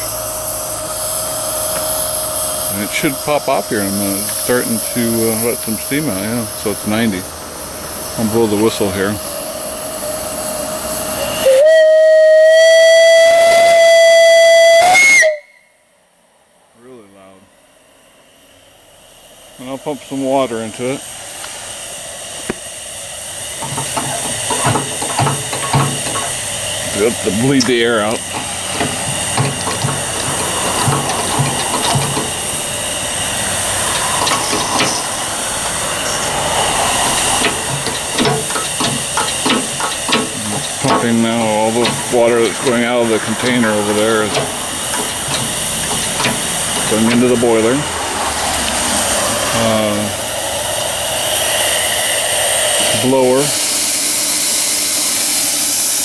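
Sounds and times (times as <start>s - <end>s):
steam hissing: 0.0s - 15.6s, 17.0s - 56.0s
loud steam whistle: 9.8s - 16.1s, 23.2s - 47.9s, 48.9s - 56.0s
hand pump knocks: 23.6s - 32.7s, 33.9s - 35.1s, 37.0s - 47.4s.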